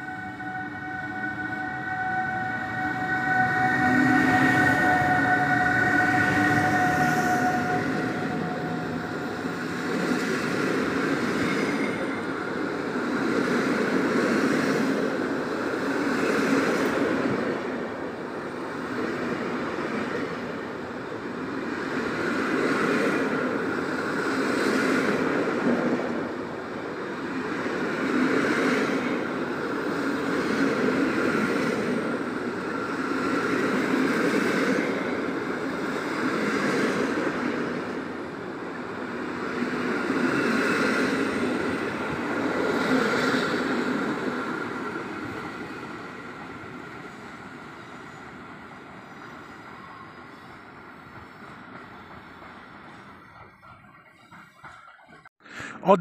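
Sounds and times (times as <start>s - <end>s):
electric locomotive whine: 0.0s - 55.3s
train coaches rolling past: 0.0s - 55.3s.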